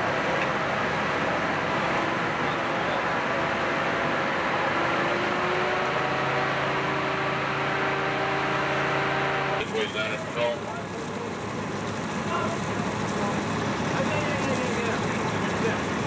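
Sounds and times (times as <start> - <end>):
fire engines idling: 0.0 - 5.0, 9.6 - 16.0.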